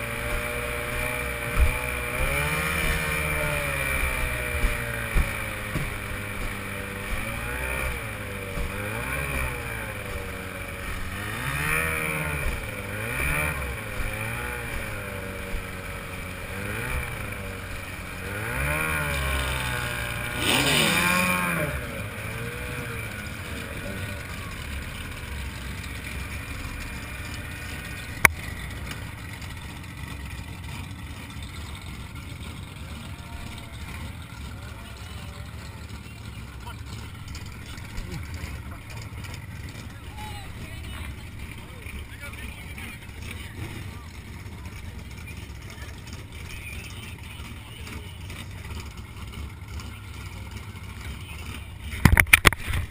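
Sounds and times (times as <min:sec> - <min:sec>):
outboard motor throttle blips: 0:00.0 - 0:52.9.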